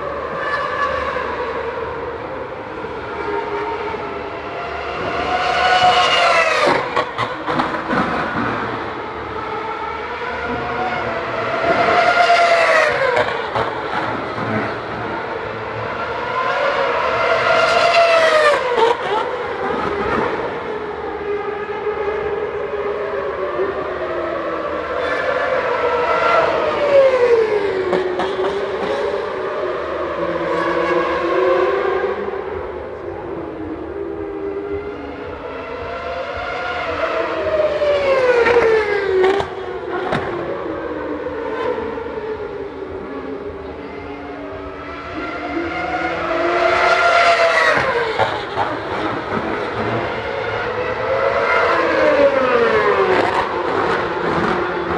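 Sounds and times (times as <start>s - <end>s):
racing cars screaming past: 3.1s - 7.2s, 7.8s - 32.4s, 43.2s - 54.9s.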